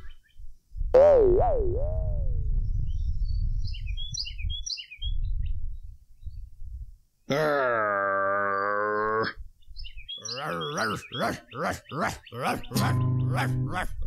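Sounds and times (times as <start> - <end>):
songbirds chirping: 3.4 - 6.5, 7.2 - 14.0.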